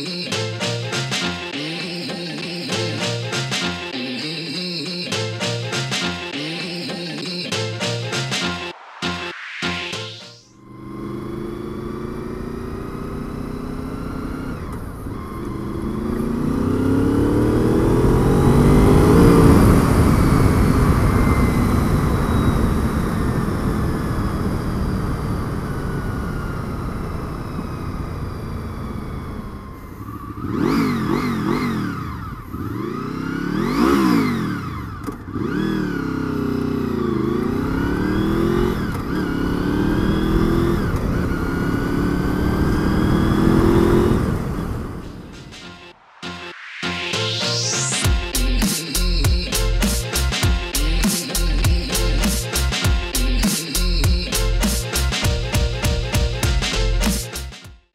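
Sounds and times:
motorcycle engine revving: 10.6 - 45.7.

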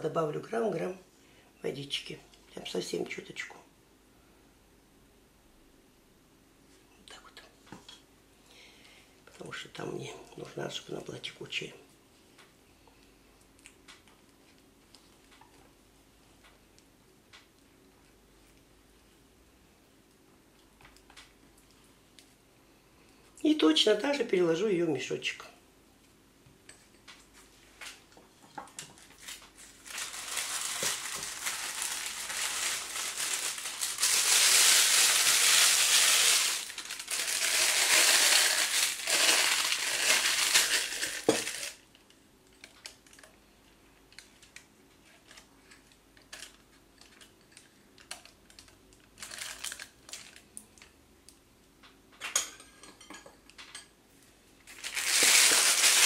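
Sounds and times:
plastic bag crinkling: 28.9 - 41.9, 46.3 - 50.5, 54.7 - 56.0.

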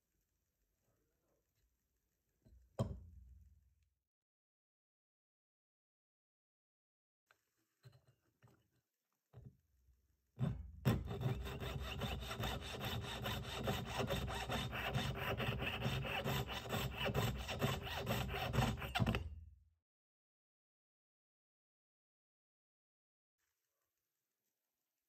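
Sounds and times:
saw cutting with rapid strokes: 11.0 - 19.2.

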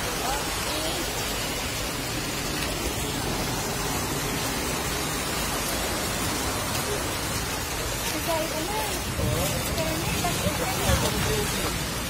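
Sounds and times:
floodwater running across street: 0.0 - 12.0
heavy rain: 0.0 - 12.0.

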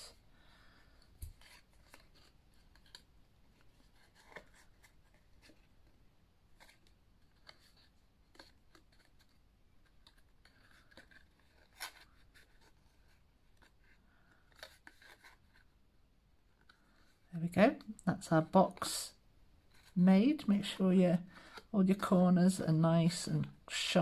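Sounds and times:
cardstock rustling: 1.2 - 15.8.

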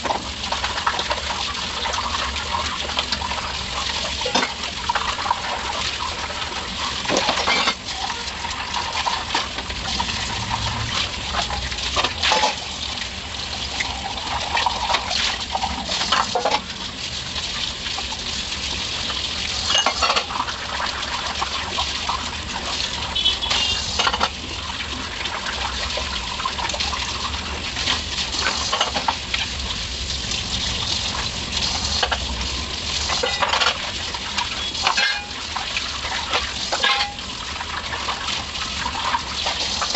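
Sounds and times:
water running from tap: 0.0 - 39.9
dishes and utensils clinking: 7.1 - 8.3, 19.7 - 20.3, 24.0 - 24.4, 28.6 - 29.2, 33.1 - 33.8, 34.8 - 35.4, 36.7 - 37.3.

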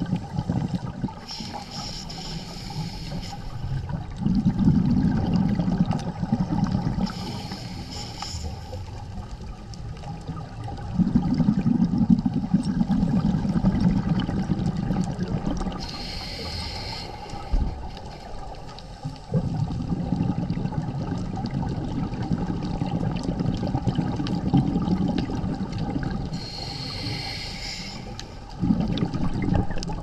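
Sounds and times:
exhaust bubbles bubbling underwater: 0.0 - 30.0
regulator inhalation hiss: 1.2 - 3.8, 7.0 - 9.0, 15.7 - 18.6, 26.3 - 28.5.

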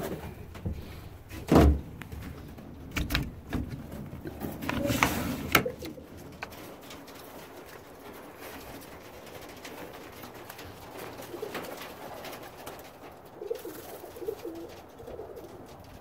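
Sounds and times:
knocks and clicks: 1.4 - 7.1
pigeons cooing: 2.4 - 16.0.

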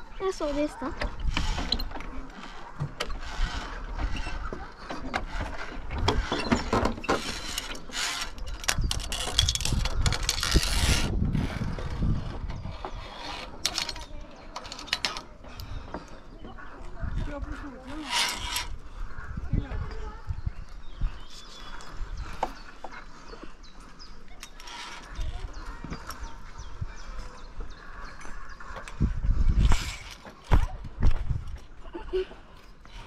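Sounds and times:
carabiners and pulley clicking: 0.2 - 16.2, 17.1 - 19.0, 24.2 - 26.4, 28.2 - 30.7
rushing scraping noise on cable: 0.3 - 19.8, 24.4 - 26.8, 27.8 - 30.6.

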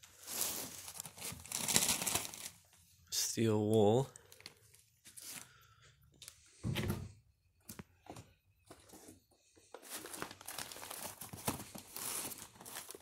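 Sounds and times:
paper and cardboard rustling: 8.7 - 13.0.

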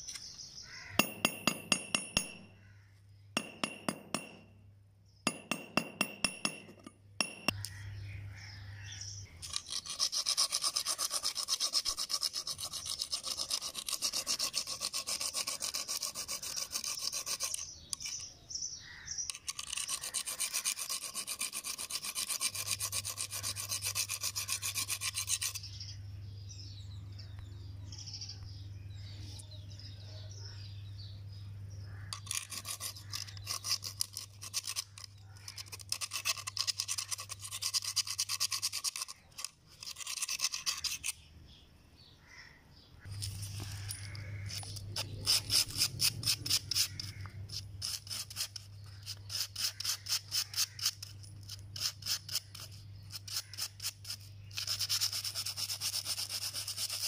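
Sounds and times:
metal rivet scraping on grinding wheel: 9.4 - 12.2, 13.3 - 18.3, 19.2 - 25.7, 32.1 - 41.2, 43.1 - 54.8.

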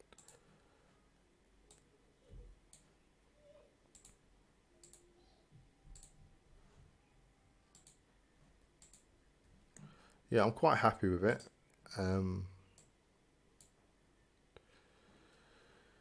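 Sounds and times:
computer mouse clicks: 0.1 - 0.4, 1.7 - 1.9, 3.9 - 4.2, 4.8 - 5.1, 5.9 - 6.2, 7.7 - 8.0, 8.8 - 9.1.

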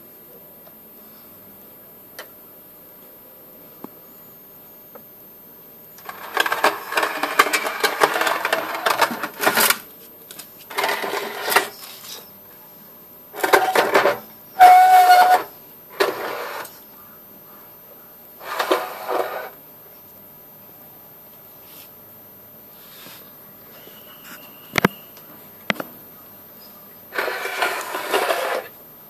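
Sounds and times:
hot plate scraping and rattling: 6.0 - 9.8, 10.7 - 11.8, 13.4 - 16.4.

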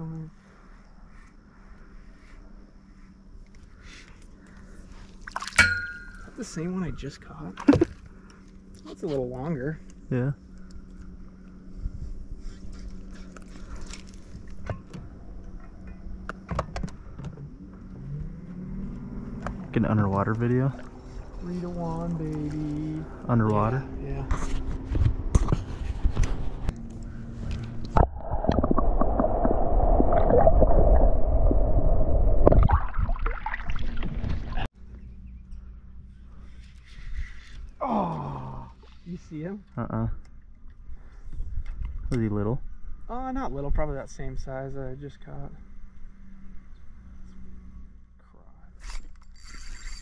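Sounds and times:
electric trolling motor humming: 6.6 - 24.0, 45.0 - 50.0
water splashing: 27.9 - 34.7.

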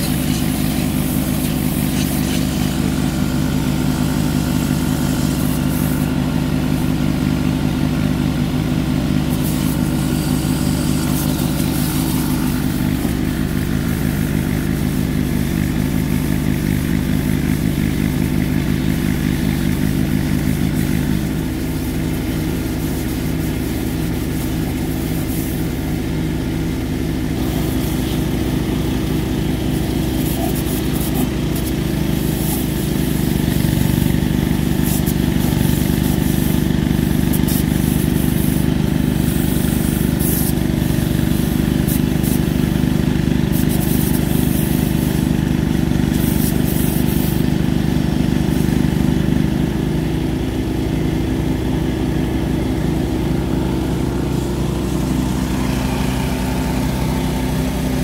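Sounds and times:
water jet spraying metal: 0.0 - 7.0, 9.2 - 26.0, 27.4 - 45.4, 46.0 - 47.7
pressure washer engine running: 0.0 - 58.0.

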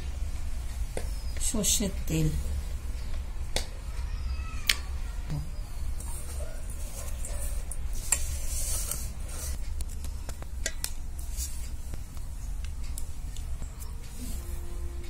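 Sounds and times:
steady low hum: 0.0 - 15.0
hands mixing in a steel bowl: 5.9 - 10.0
soft clicks and crackles: 7.0 - 14.3.

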